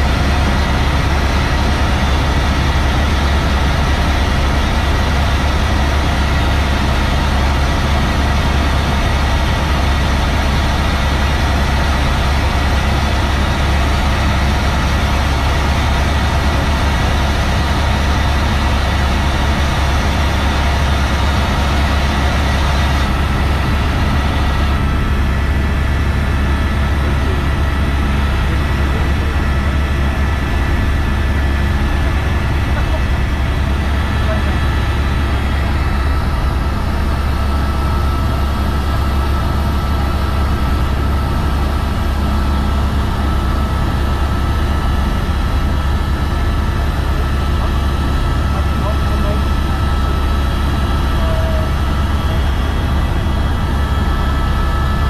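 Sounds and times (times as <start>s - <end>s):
helicopter rotor and engine drone: 0.0s - 55.0s.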